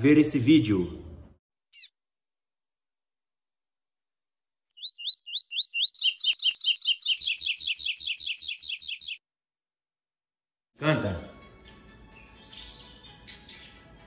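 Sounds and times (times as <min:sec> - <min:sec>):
bird singing chirped notes: 0:01.7 - 0:01.9, 0:04.7 - 0:09.2, 0:12.1 - 0:14.0.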